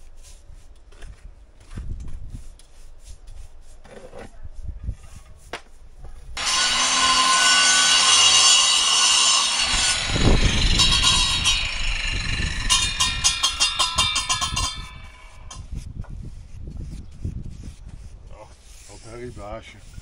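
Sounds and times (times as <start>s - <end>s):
power tool grinding: 6.4s - 15.6s.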